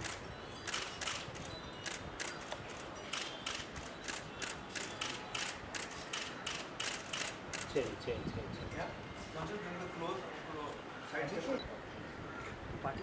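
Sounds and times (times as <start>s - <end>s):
camera shutters clicking: 0.0s - 8.0s.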